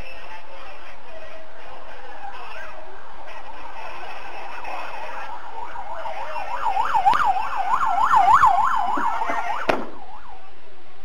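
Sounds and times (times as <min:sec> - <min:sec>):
siren yelping: 0:02.0 - 0:10.4.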